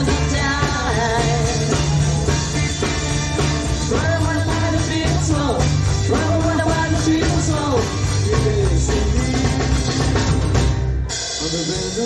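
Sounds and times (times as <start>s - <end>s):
live rock band playing: 0.0s - 12.0s.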